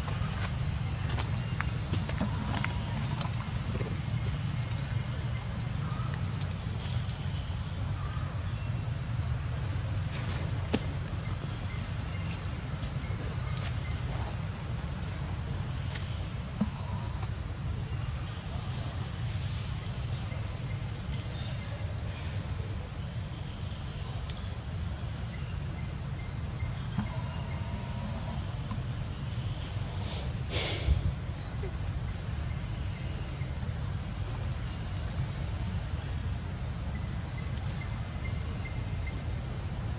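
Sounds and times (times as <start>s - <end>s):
high-pitched insect drone: 23.6s - 35.3s.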